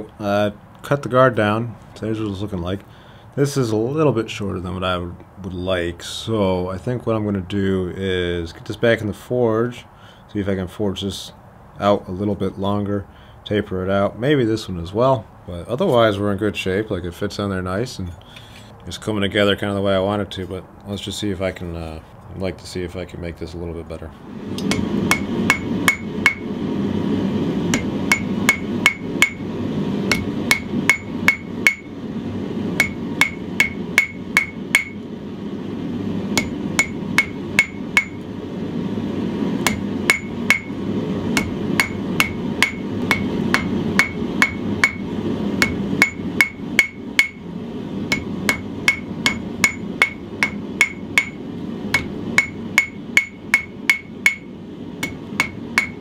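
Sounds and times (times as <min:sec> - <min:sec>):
hammer striking hot steel on anvil: 0:24.6 - 0:26.5, 0:27.7 - 0:29.4, 0:30.1 - 0:32.0, 0:32.8 - 0:35.1, 0:36.3 - 0:38.3, 0:39.6 - 0:47.4, 0:48.1 - 0:56.0.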